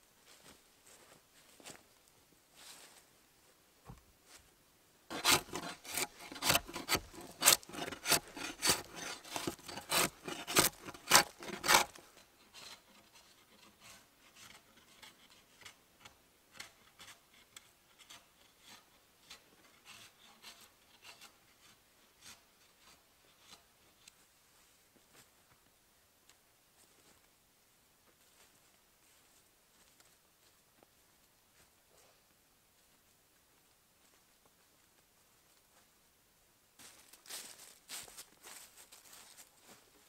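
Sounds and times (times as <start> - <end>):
blade scraping bark off wood: 5.1 - 17.2.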